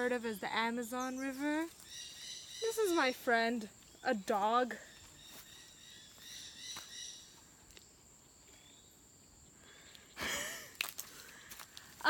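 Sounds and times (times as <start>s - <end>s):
chirping calls: 0.0s - 4.2s, 4.9s - 7.4s
insects buzzing: 0.0s - 12.0s.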